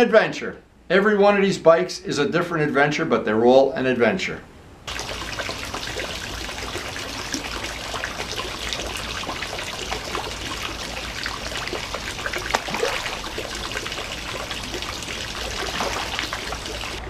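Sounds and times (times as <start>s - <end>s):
pond water trickling and splashing: 4.9s - 17.0s
small splashy clicks on water: 11.8s - 14.2s, 15.5s - 17.0s.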